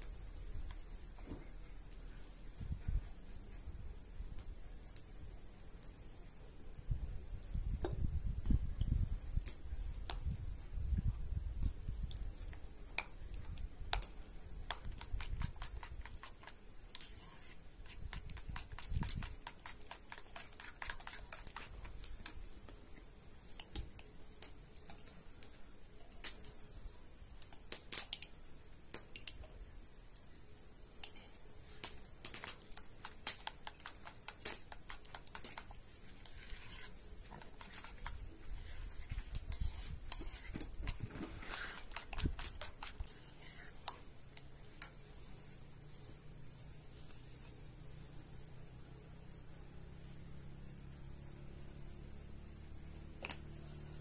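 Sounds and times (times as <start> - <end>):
spoon stirring yogurt: 11.1 - 26.1, 31.0 - 45.6.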